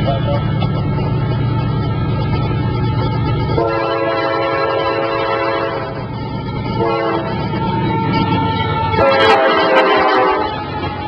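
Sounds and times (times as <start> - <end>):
low train rumble: 0.0 - 11.0
locomotive air horn blasts: 3.5 - 6.1, 6.8 - 11.0.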